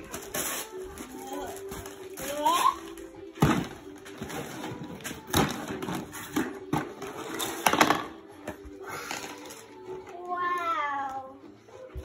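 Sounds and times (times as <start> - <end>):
wrapping paper tearing and crumpling: 0.0 - 3.2, 8.9 - 11.2.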